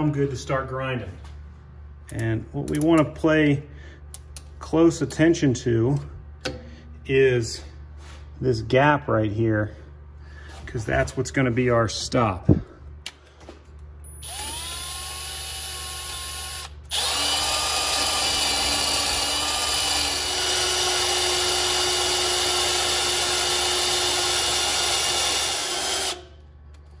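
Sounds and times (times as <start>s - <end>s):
cordless drill grinding metal: 14.1s - 26.3s.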